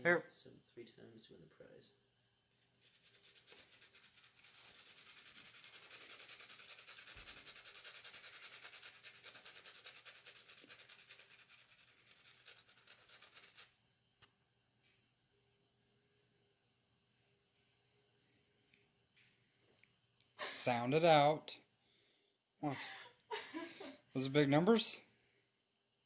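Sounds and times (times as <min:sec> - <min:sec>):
scratch-off ticket being scratched: 0:02.8 - 0:13.7.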